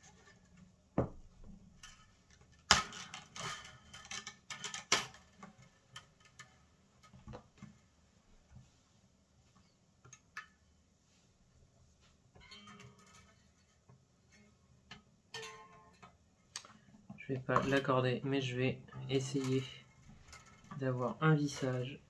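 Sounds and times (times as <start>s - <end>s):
clicks on guitar strings: 14.4s - 18.0s.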